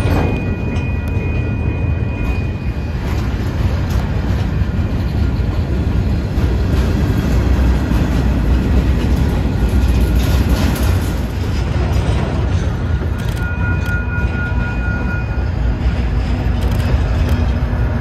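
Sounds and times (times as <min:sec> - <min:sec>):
freight train rumbling past: 0:00.0 - 0:18.0
train wheel clicks: 0:03.0 - 0:15.1, 0:15.8 - 0:18.0.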